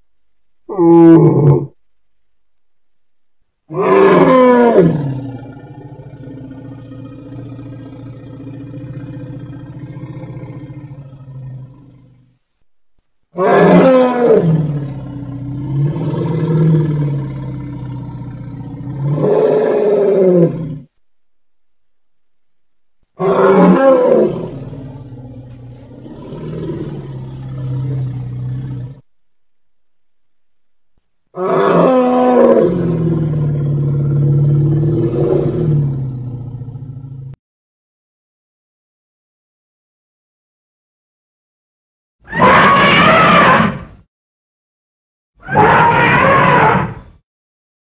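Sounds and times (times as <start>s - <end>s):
low animal call: 0.7s - 1.8s, 3.7s - 12.2s, 42.3s - 44.0s, 45.4s - 47.2s
animal cry bending down in pitch: 42.3s - 44.0s, 45.4s - 47.1s.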